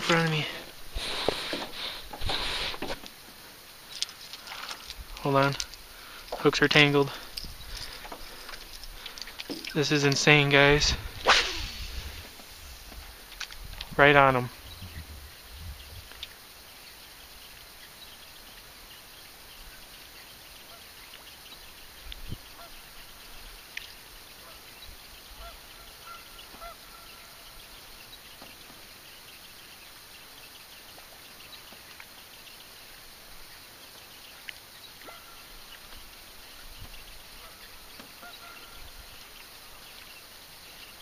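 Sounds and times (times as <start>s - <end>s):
faint short bird calls: 25.3s - 27.8s, 34.9s - 39.8s.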